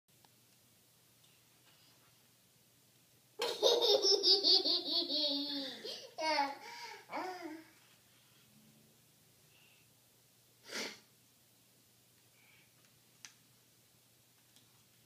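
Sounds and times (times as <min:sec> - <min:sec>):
toddler laughing: 0:03.4 - 0:07.6.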